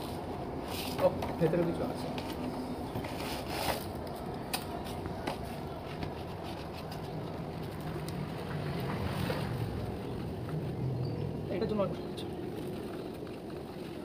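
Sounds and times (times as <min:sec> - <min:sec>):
skate boot clicks and handling: 0:02.1 - 0:08.8.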